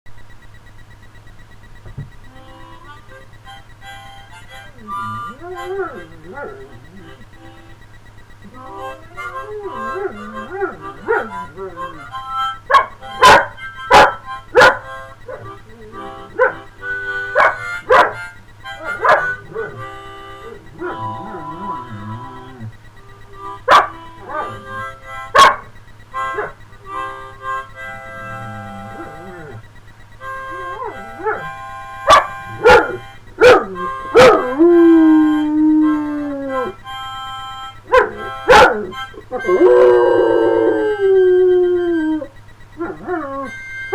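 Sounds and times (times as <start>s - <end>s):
harmonica chords: 0.1s - 43.9s
dog whining: 2.2s - 43.9s
dog yelping: 4.4s - 7.6s, 8.4s - 27.6s, 28.8s - 29.6s, 30.4s - 36.9s, 37.9s - 40.1s, 42.2s - 43.9s
dog howling: 4.6s - 7.3s, 8.4s - 18.2s, 18.8s - 25.6s, 26.3s - 27.4s, 28.2s - 29.6s, 30.2s - 37.0s, 37.9s - 43.9s
dog barking: 12.7s - 15.5s, 16.4s - 16.6s, 17.4s - 18.2s, 19.0s - 19.8s, 23.7s - 24.6s, 25.4s - 25.7s, 30.8s - 31.5s, 32.1s - 34.5s, 37.9s - 39.0s.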